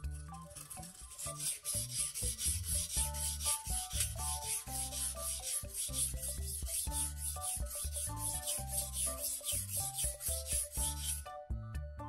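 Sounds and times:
knife grinding on whetstone: 0:00.1 - 0:11.2.

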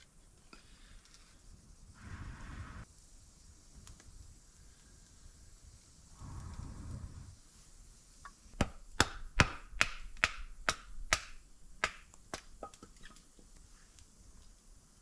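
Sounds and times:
low rush of air: 0:01.9 - 0:02.9, 0:04.5 - 0:08.0
firewood chopping knocks: 0:08.6 - 0:12.8.

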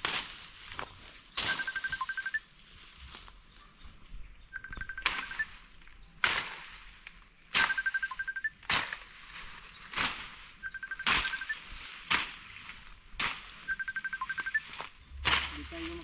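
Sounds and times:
swishing through grass and ferns: 0:00.0 - 0:16.0
rapid high pips: 0:01.4 - 0:02.4, 0:07.6 - 0:08.5, 0:10.6 - 0:11.7, 0:13.7 - 0:14.7.

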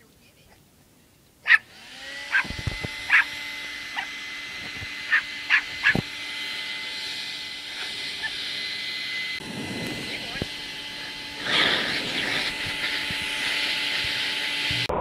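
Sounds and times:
puppy yapping: 0:01.4 - 0:01.7, 0:02.3 - 0:03.3, 0:03.9 - 0:04.1, 0:05.1 - 0:06.0
steady mechanical hum: 0:01.5 - 0:14.9.

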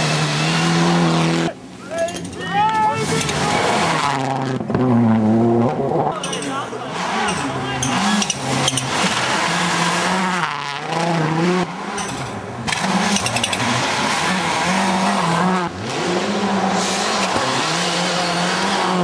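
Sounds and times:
rally car engines revving hard: 0:00.0 - 0:19.0.

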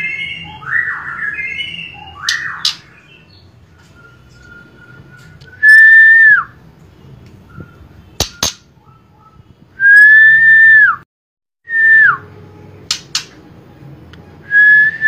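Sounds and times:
bird whistling: 0:00.0 - 0:06.6, 0:07.4 - 0:11.0, 0:14.5 - 0:15.0.

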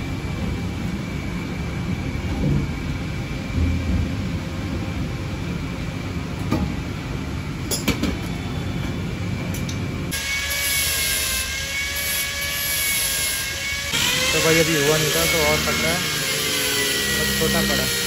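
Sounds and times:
angle grinder whining: 0:10.1 - 0:18.0.

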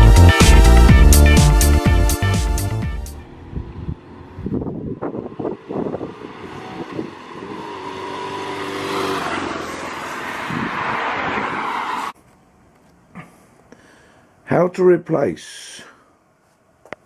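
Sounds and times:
motorcycle engine passing: 0:02.9 - 0:12.2
tyres hissing on wet road: 0:08.7 - 0:12.1.

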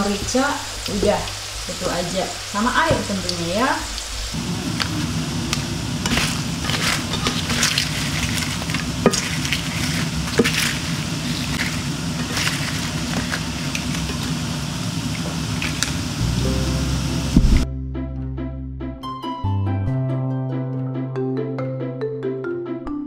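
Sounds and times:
deep-frying sizzle: 0:00.0 - 0:17.7.

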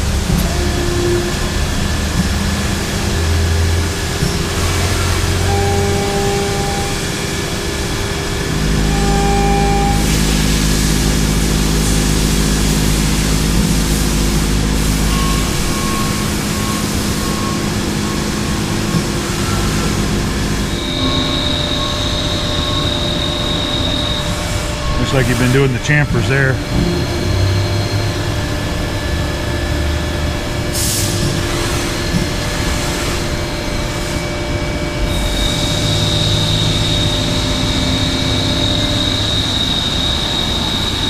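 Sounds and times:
machine hum: 0:00.0 - 0:41.0
coolant hiss: 0:01.5 - 0:20.7.

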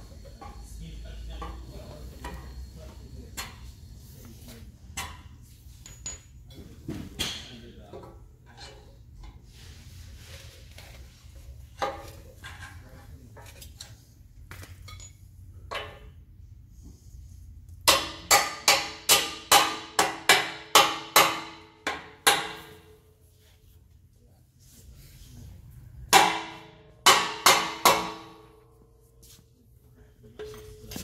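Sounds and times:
metal parts clinking: 0:14.6 - 0:15.3.

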